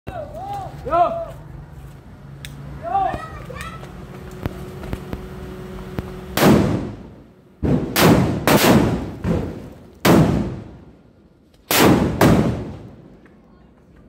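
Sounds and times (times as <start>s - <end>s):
firecrackers banging: 3.1s - 13.5s.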